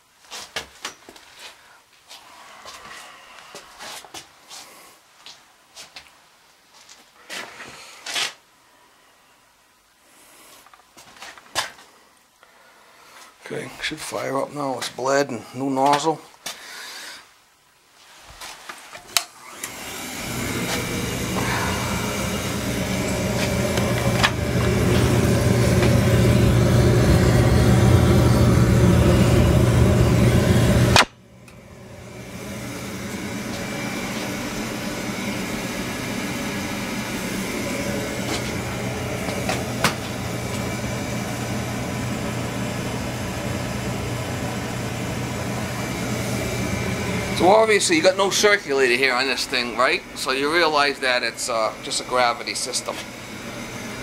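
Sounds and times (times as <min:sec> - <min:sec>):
oil burner motor and fan hum: 0:19.2 - 0:54.0
burner flame rushing: 0:19.4 - 0:54.0.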